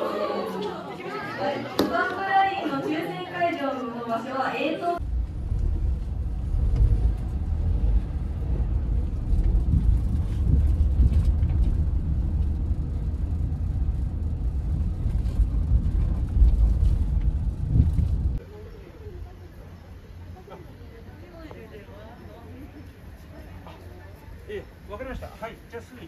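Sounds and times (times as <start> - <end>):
car engine and road noise: 5.0 - 18.4.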